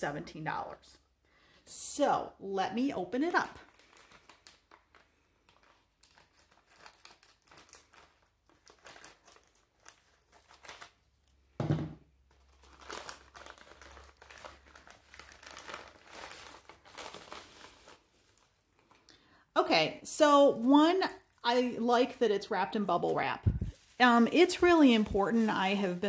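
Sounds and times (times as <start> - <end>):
plastic crinkling: 3.1 - 11.5, 12.3 - 19.2, 20.5 - 26.0
thump: 11.6 - 12.0.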